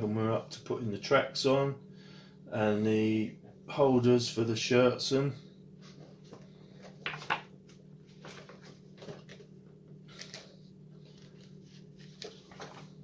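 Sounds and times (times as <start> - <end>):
faint low hum: 0.0 - 13.0
paper pages rustling: 8.1 - 9.5, 10.1 - 13.0.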